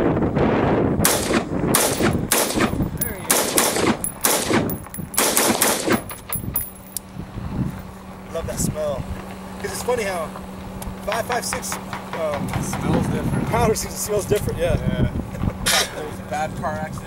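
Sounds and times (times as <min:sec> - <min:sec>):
rifle shots: 0:01.0 - 0:06.1.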